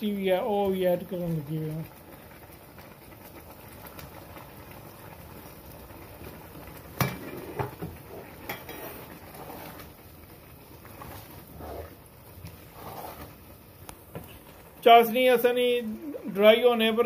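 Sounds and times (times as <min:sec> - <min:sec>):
wooden spoon stirring rice: 0:07.0 - 0:10.0, 0:10.7 - 0:14.7.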